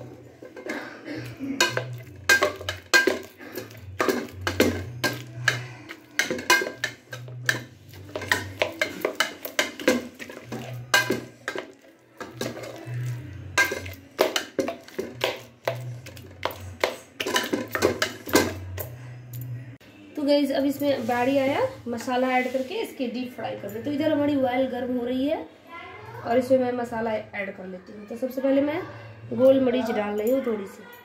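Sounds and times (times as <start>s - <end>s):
utensil knocking against a pot: 1.6s - 12.9s.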